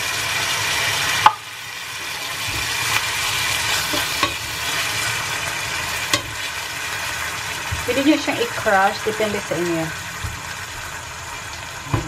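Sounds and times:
food sizzling in frying pan: 0:00.0 - 0:12.0
spatula tapping on pan: 0:03.9 - 0:04.4, 0:06.1 - 0:06.4.

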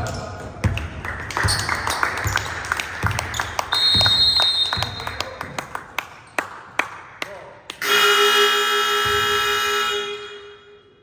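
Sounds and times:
basketball bouncing: 0:00.0 - 0:05.0, 0:09.0 - 0:09.4
high whistle: 0:03.7 - 0:05.2, 0:07.8 - 0:11.0.

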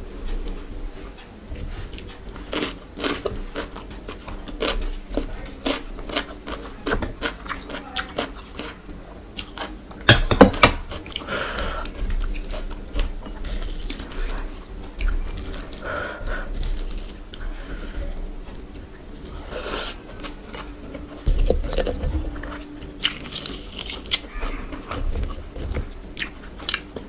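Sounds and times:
rice squishing by hand: 0:10.5 - 0:26.7.

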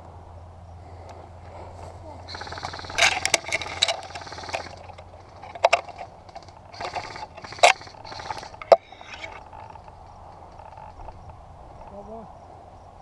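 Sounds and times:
brush and branches rustling: 0:00.7 - 0:12.2.

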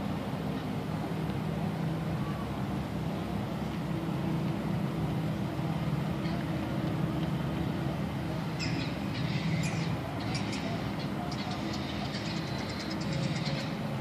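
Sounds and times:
low engine drone: 0:00.0 - 0:14.0.

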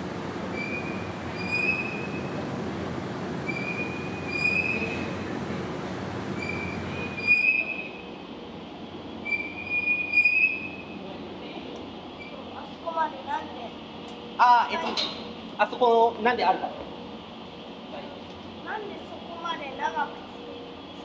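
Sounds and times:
high squeal from wheels: 0:00.5 - 0:02.3, 0:03.4 - 0:05.1, 0:06.4 - 0:08.1, 0:09.2 - 0:11.0.

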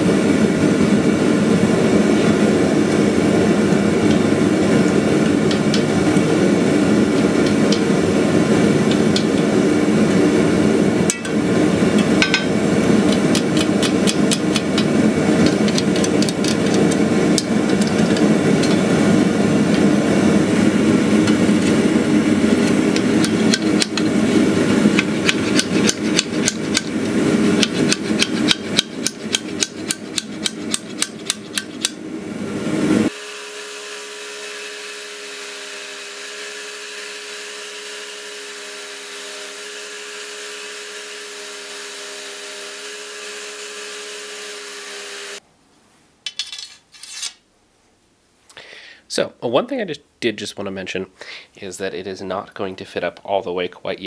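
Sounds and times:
hammer striking metal on anvil: 0:11.0 - 0:16.6, 0:27.6 - 0:32.0.

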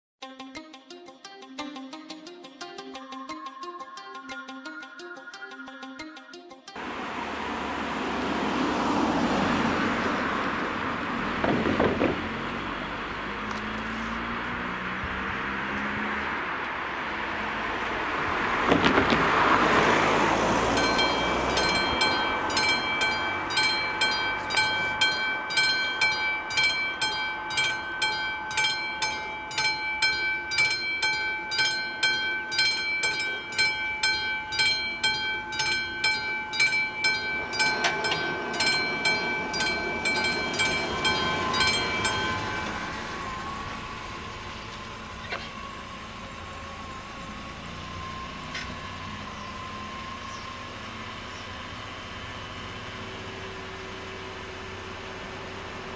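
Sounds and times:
car passing: 0:06.8 - 0:55.8
car engine idling: 0:06.8 - 0:55.9
level-crossing warning bell: 0:19.9 - 0:55.9.

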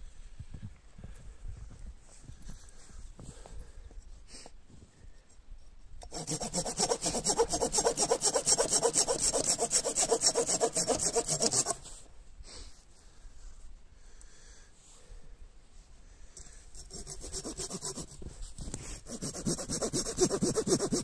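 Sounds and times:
hand saw cutting wood: 0:06.0 - 0:12.0, 0:16.7 - 0:21.0.

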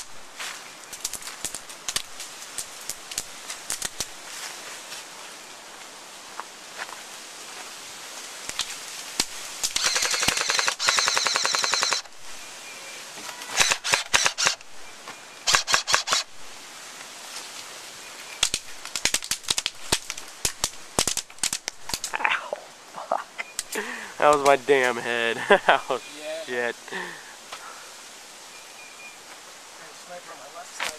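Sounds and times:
airsoft gun single shots: 0:09.7 - 0:12.1, 0:13.6 - 0:14.6, 0:15.5 - 0:16.3
airsoft full-auto bursts: 0:09.8 - 0:12.1, 0:13.5 - 0:14.6, 0:15.5 - 0:16.3.

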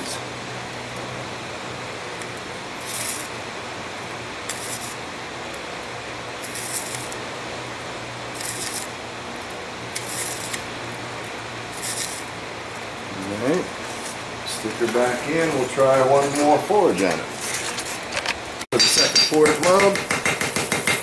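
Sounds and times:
sand hissing on hot metal: 0:02.7 - 0:03.4, 0:04.4 - 0:05.1, 0:06.4 - 0:07.2, 0:08.2 - 0:09.0, 0:09.8 - 0:10.7, 0:11.6 - 0:12.4.

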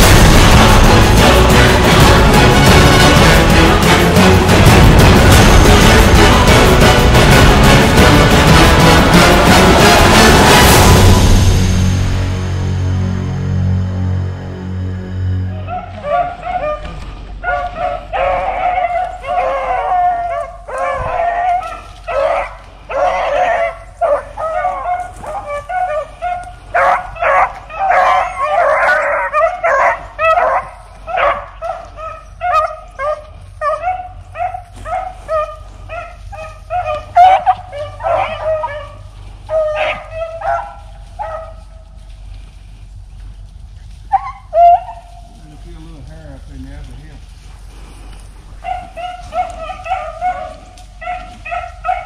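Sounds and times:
beagles baying in chorus: 0:15.5 - 0:42.4, 0:43.2 - 0:45.4, 0:48.4 - 0:52.0.

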